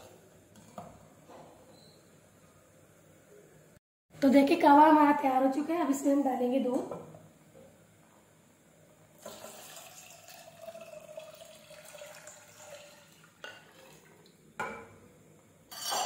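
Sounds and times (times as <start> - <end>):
milk pouring into a saucepan: 9.2 - 14.4.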